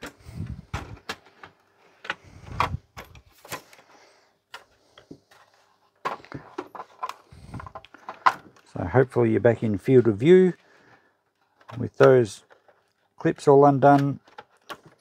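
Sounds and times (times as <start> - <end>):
hard plastic parts clicking: 0.0 - 9.1, 9.8 - 15.0.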